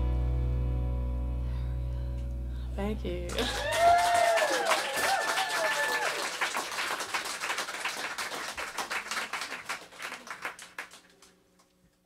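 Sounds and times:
audience clapping: 3.3s - 11.4s.

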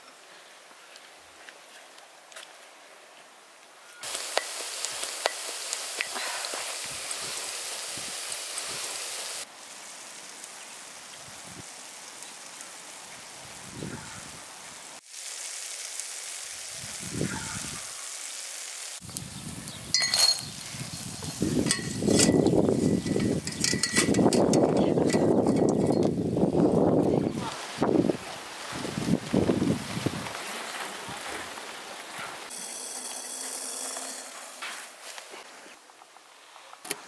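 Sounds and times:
hot oil sizzling: 4.0s - 26.7s, 32.5s - 35.2s
wire skimmer scraping metal pot: 20.0s - 26.1s, 32.5s - 34.9s.

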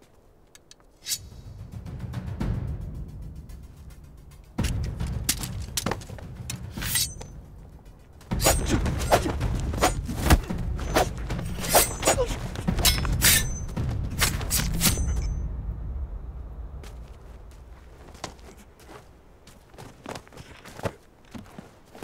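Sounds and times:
low dramatic music: 0.2s - 20.3s
fight hits and scuffles: 4.6s - 7.3s, 8.2s - 15.4s, 16.8s - 22.0s.

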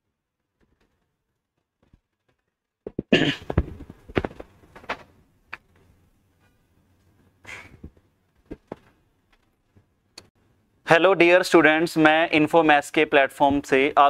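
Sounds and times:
knocks and thuds: 2.8s - 5.1s, 7.8s - 8.9s.

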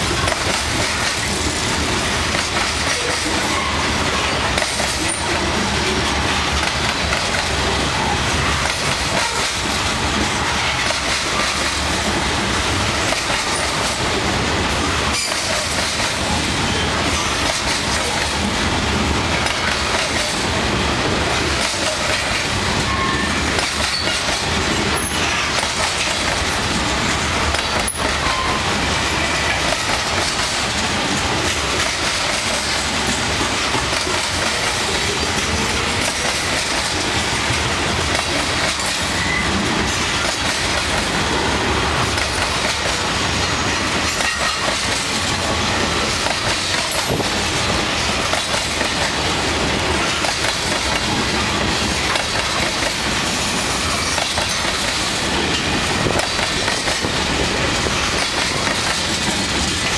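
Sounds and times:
freight train wheels clattering: 0.0s - 59.9s.

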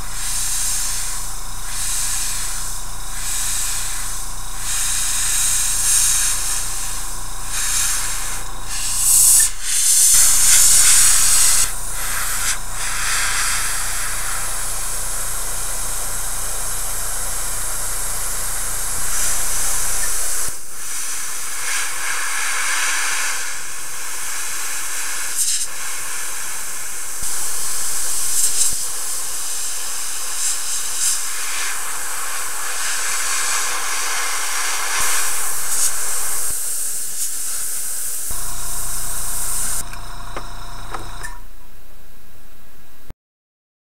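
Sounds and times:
airbrush hissing: 0.0s - 41.4s
low steady hum: 38.3s - 43.1s.

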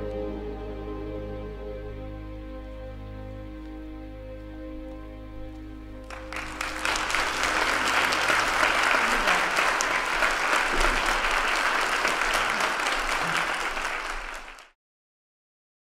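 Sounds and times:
congregation applauding: 6.0s - 14.8s.

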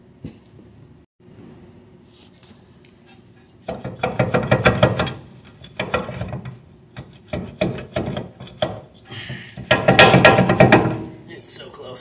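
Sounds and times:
metal clattering and scraping: 2.5s - 11.3s.

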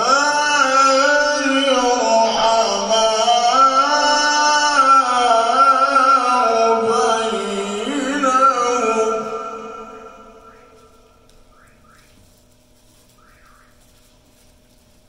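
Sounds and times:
man chanting melodic recitation: 0.0s - 11.2s.

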